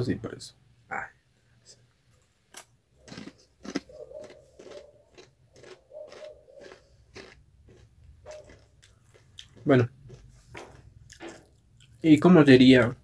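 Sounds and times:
person crunching tortilla chips: 2.5s - 12.0s.

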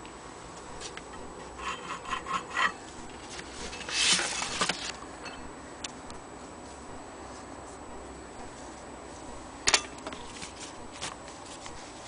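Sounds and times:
handling scrape: 1.5s - 5.0s
handling rustle: 3.2s - 5.0s, 10.0s - 12.0s.

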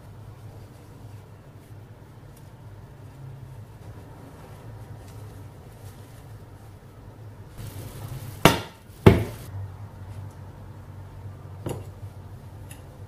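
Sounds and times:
kitchenware clanking: 7.6s - 9.5s.

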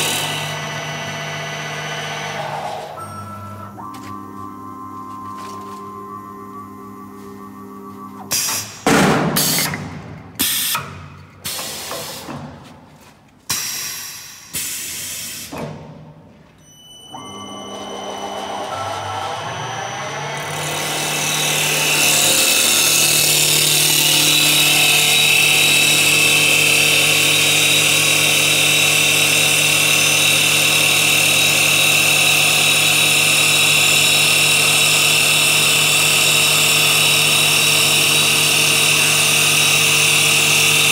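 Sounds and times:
lathe turning and cutting whir: 0.0s - 8.4s, 17.1s - 40.9s.

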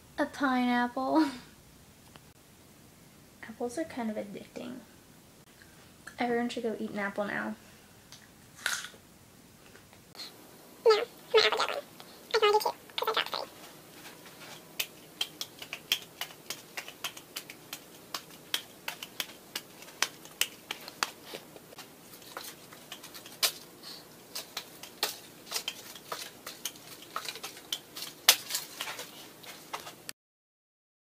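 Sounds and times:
apples slapping into palms: 14.8s - 21.5s, 22.2s - 23.6s, 24.3s - 30.0s.

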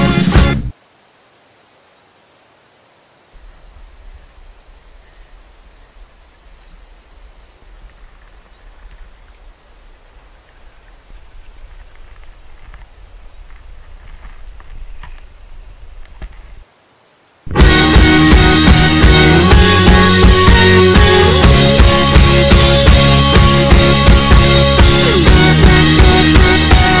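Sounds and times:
high insect drone: 0.7s - 24.7s.

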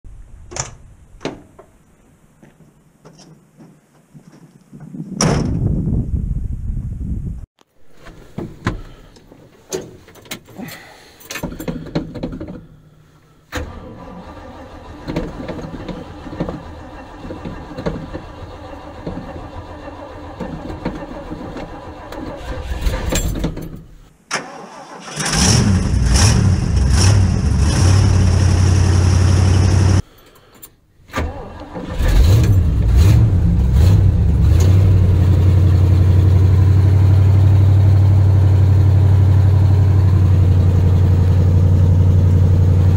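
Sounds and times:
engine starting and idling: 13.5s - 23.4s, 24.3s - 30.0s, 31.1s - 42.9s.

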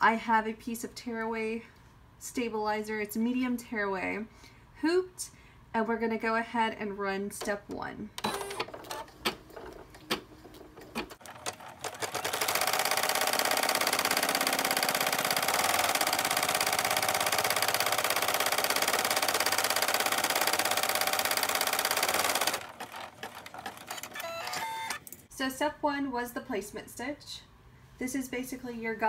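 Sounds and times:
embroidery machine rattling: 10.8s - 25.0s.

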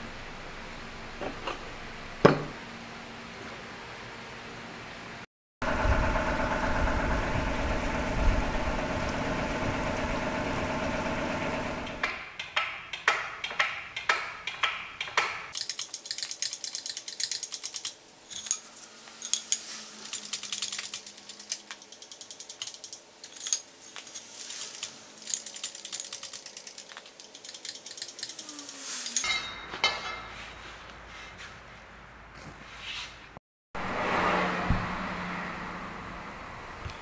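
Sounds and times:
metal parts clinking together: 15.0s - 30.2s.

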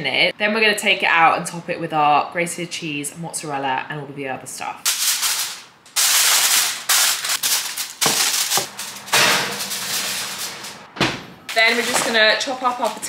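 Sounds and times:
aluminium foil crinkling: 4.8s - 10.8s, 11.5s - 13.0s.

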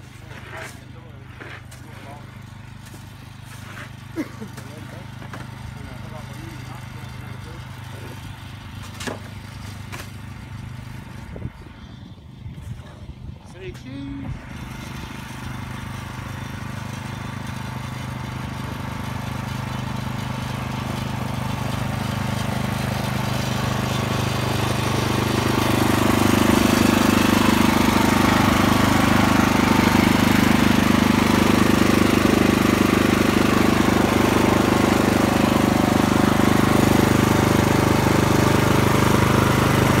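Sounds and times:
snowblower engine running: 0.0s - 40.0s.

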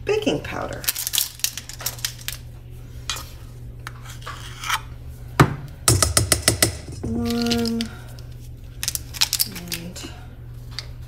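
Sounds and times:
steady low hum: 0.0s - 11.0s
plastic spoons clacking: 5.9s - 8.0s, 8.8s - 9.9s.

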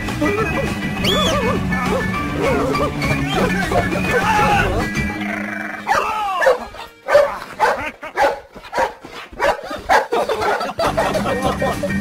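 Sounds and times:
cartoon dog whining: 1.1s - 7.7s
cartoon dog yips and barks: 5.9s - 10.6s.

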